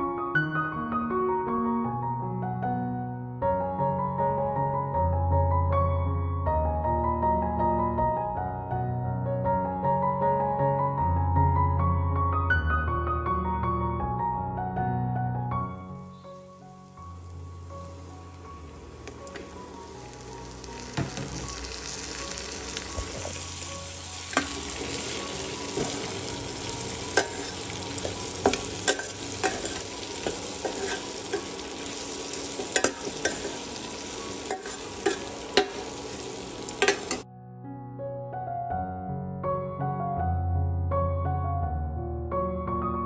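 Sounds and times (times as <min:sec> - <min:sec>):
food sizzling in oil: 0:16.0 - 0:37.2.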